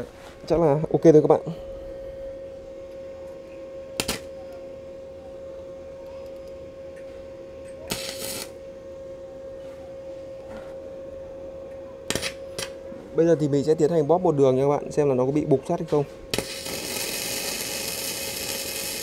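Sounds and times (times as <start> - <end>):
steady high hum: 0.0 - 19.0
crackling welding arc: 3.9 - 4.3, 7.8 - 8.6, 12.1 - 12.8, 16.3 - 19.0.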